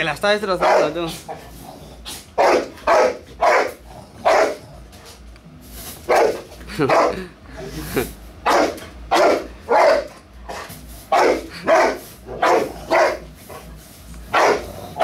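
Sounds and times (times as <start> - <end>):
dog barking: 0.6 - 1.1, 2.4 - 4.7, 6.1 - 7.2, 8.4 - 13.6, 14.3 - 15.0.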